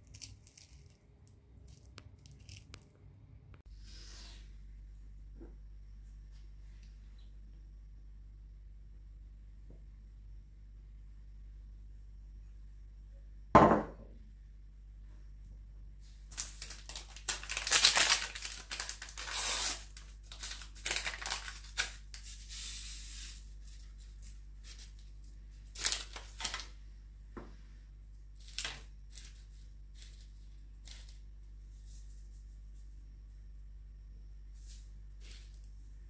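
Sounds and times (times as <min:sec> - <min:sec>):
paper sachet tearing and crinkling: 0:16.3 - 0:26.7, 0:28.4 - 0:31.2.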